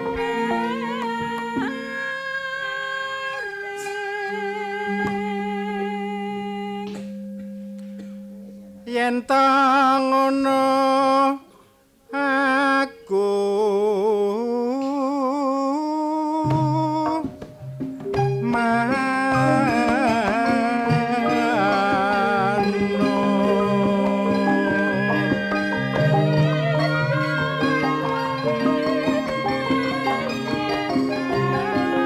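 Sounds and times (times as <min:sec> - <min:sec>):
person singing with vibrato: 0:00.0 - 0:07.2, 0:08.8 - 0:17.4, 0:18.4 - 0:32.0.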